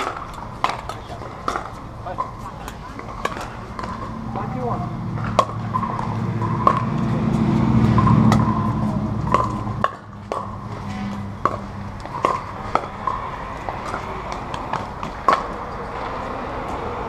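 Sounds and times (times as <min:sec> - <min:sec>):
low rumble: 0:02.9 - 0:14.3.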